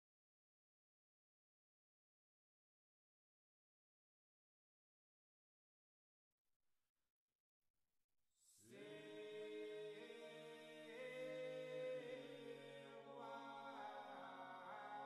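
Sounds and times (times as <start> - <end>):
choral chant: 8.5 - 15.0.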